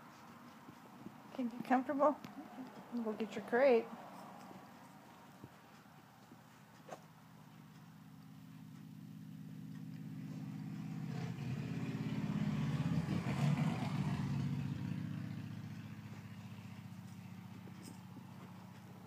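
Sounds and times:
vehicle engine droning past: 7.5 - 19.0.

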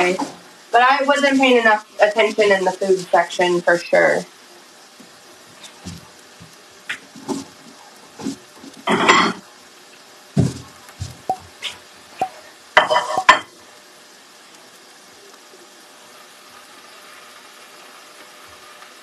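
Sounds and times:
utensils clinking against pans: 8.9 - 9.4, 12.2 - 13.5.

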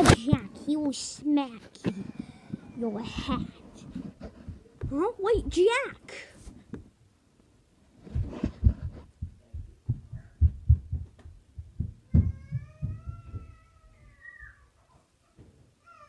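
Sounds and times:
cat meowing high: 12.4 - 14.7.

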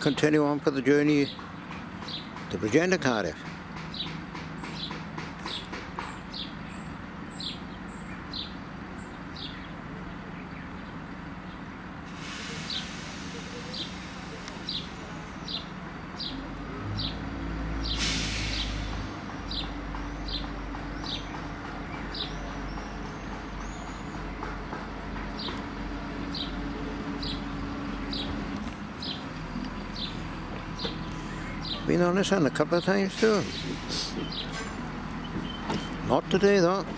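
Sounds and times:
diesel train engines rumbling: 0.0 - 36.9
bird chirping: 1.2 - 2.5, 3.4 - 11.7, 12.6 - 36.8
hissing air burst: 12.1 - 15.6, 17.8 - 19.3, 33.1 - 34.8.

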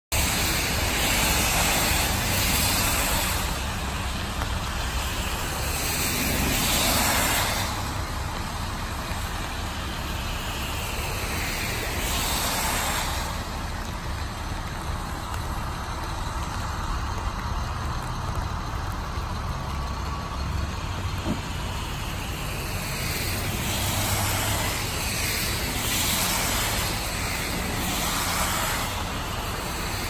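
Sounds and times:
diesel bus engine rumbling: 0.1 - 30.0
tyres hissing on wet road: 0.1 - 30.0.

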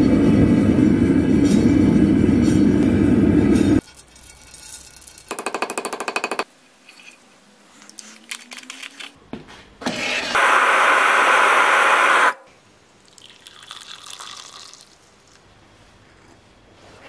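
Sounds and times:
forge burner rushing: 0.0 - 3.8, 10.3 - 12.4.

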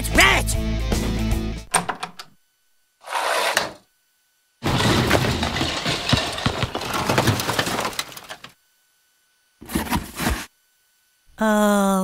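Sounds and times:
glass breaking: 4.6 - 8.5
crashing and banging: 4.6 - 8.6.

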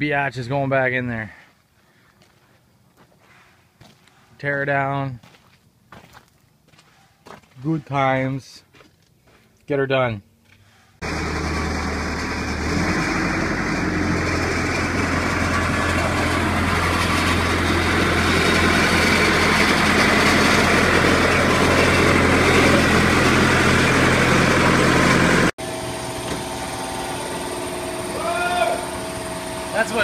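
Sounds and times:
loader engine running: 11.0 - 30.0.

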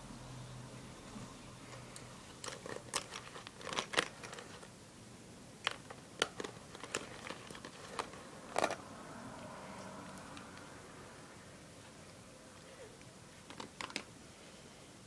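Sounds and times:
plastic bag crinkling: 2.3 - 4.7, 5.6 - 8.8.

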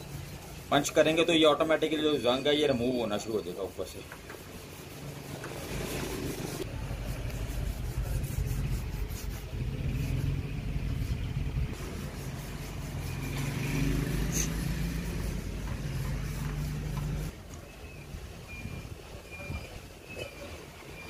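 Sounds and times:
steel wool scrubbing metal rim: 0.0 - 17.3.

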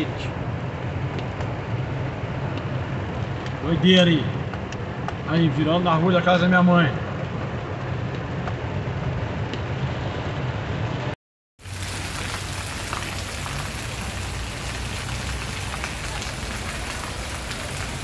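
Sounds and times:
heavy rain pouring on street: 11.6 - 18.0
rain drumming on car roof: 11.6 - 18.0.

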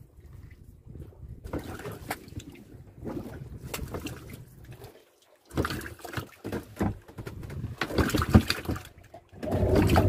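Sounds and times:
knocks and clatter on wooden boat: 1.4 - 4.4, 5.5 - 10.0.

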